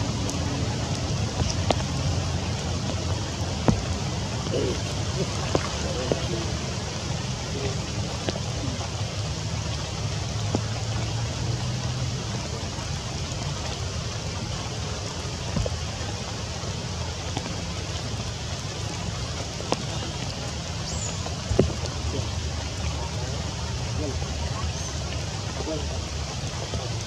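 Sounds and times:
rain falling on leaves: 0.0 - 27.0.

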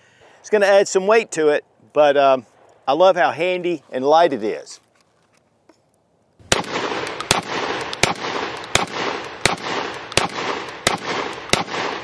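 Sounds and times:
shotgun shots with echo: 6.5 - 12.0.

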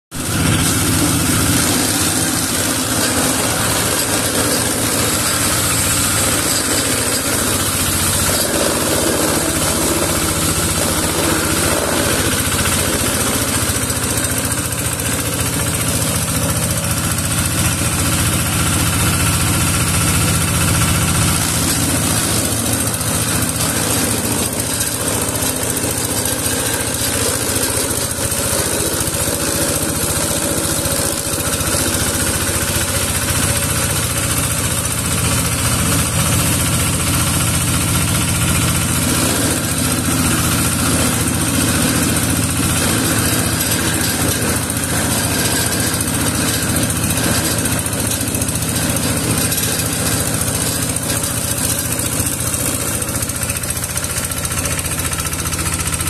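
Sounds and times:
shredder engine running: 0.1 - 56.0.

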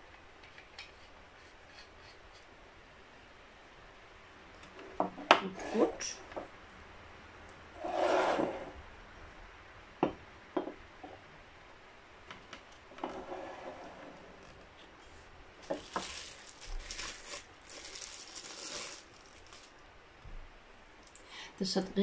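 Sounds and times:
ceramic shade scraping: 5.4 - 6.2, 7.8 - 8.8, 13.0 - 14.6
plastic wrapping crinkling: 15.6 - 19.8.

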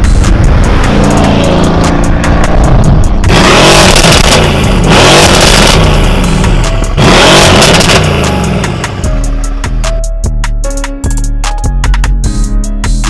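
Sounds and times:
car engine revving: 0.0 - 9.4.

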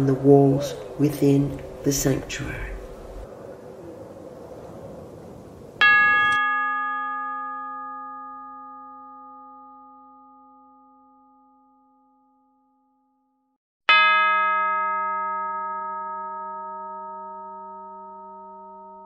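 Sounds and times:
struck bell ringing: 5.8 - 12.9, 13.9 - 19.0.

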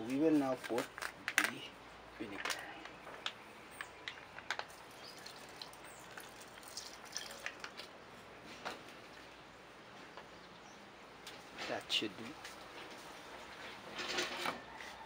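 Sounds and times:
liquid trickling into a pot: 4.7 - 7.8.

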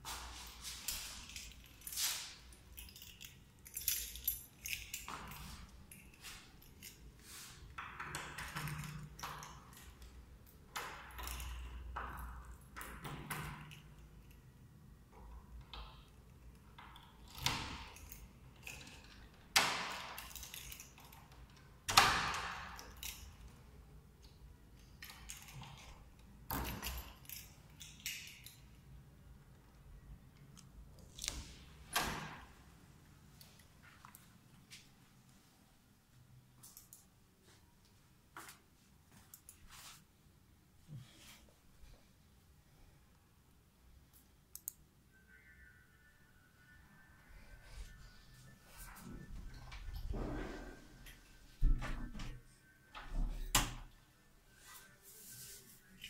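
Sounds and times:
keys jangling: 0.6 - 7.5, 20.0 - 21.4, 24.8 - 28.8.

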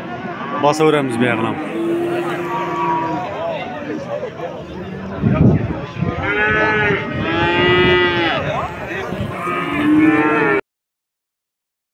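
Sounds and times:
crowd hubbub: 0.0 - 10.6
cattle mooing: 0.9 - 4.1, 6.2 - 10.6.

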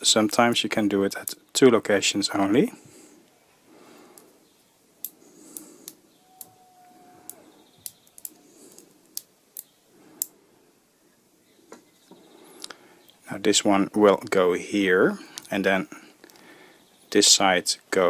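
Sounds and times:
magnet balls clicking: 5.0 - 6.6, 7.3 - 10.4.

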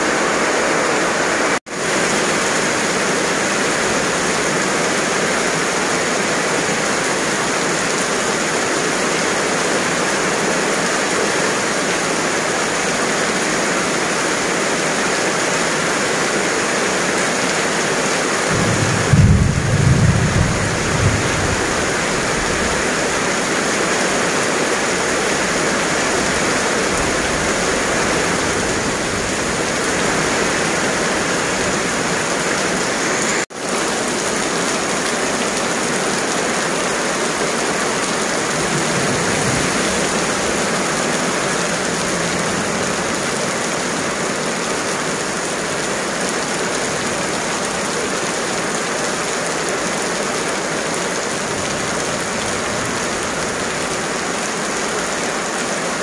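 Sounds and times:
heavy rain on pavement: 0.0 - 56.0
low rumble of thunder: 18.5 - 22.8.

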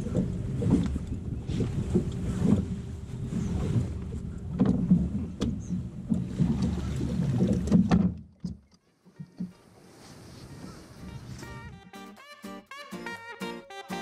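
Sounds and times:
wind rumbling on microphone: 0.0 - 8.2.

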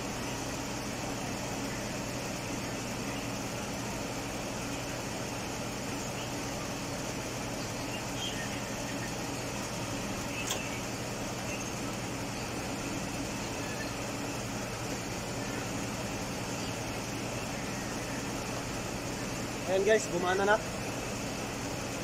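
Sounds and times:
air conditioning running: 0.0 - 22.0
car engine idling: 0.0 - 22.0
short click: 10.4 - 10.7.

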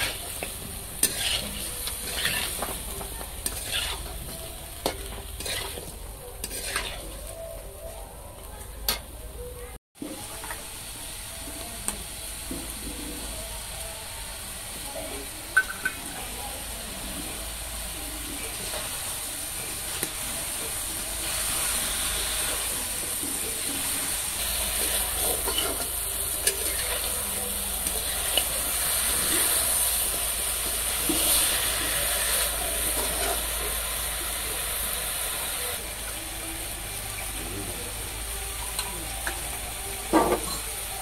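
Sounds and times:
spatula stirring and scraping: 0.0 - 8.0, 23.2 - 33.7
chicken sizzling in a wok: 0.0 - 9.4, 10.0 - 41.0.

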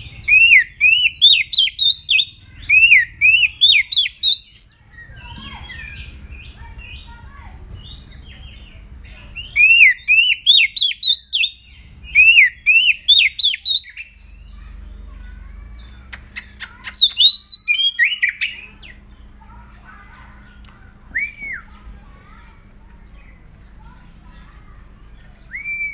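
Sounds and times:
bird singing whistled notes: 0.1 - 8.6, 9.4 - 14.6, 16.9 - 19.0, 25.4 - 25.9.

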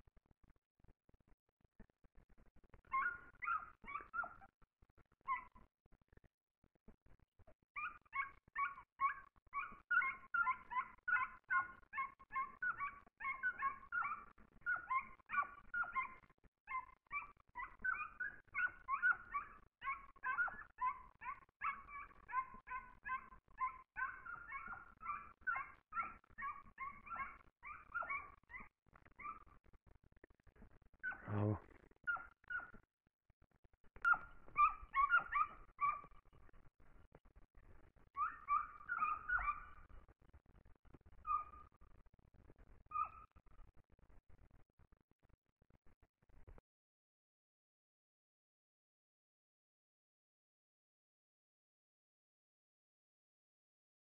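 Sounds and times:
hound baying: 2.9 - 4.5, 7.8 - 29.5, 31.0 - 32.8, 34.1 - 36.2, 38.2 - 39.9.

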